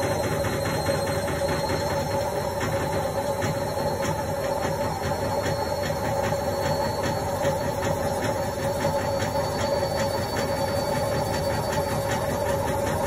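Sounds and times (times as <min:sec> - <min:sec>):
washing machine motor hum: 0:00.0 - 0:13.0.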